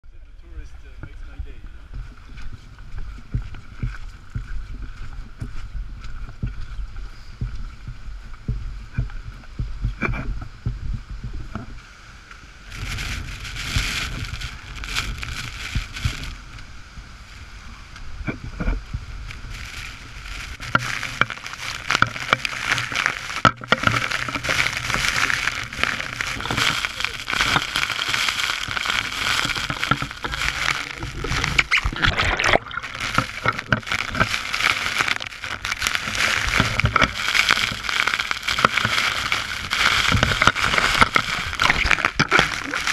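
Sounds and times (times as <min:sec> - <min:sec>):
waterfall rushing: 0:19.5 - 0:42.9.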